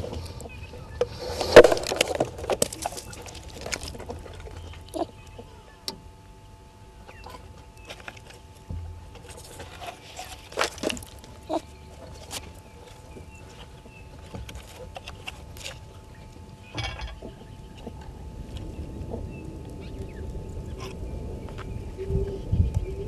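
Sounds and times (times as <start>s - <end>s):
dull low bumps: 8.3s - 23.0s.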